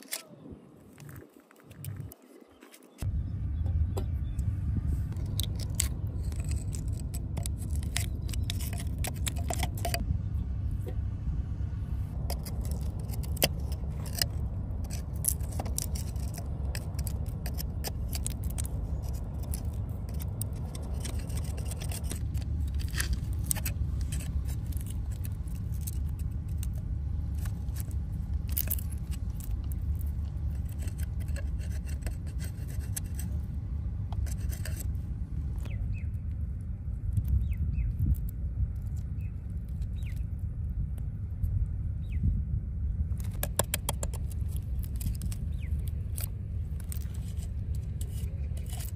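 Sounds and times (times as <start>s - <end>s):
low rumble: 3.0s - 48.9s
metal pick scraping oyster shells: 5.1s - 10.0s, 12.2s - 33.5s, 34.1s - 35.0s, 43.1s - 48.9s.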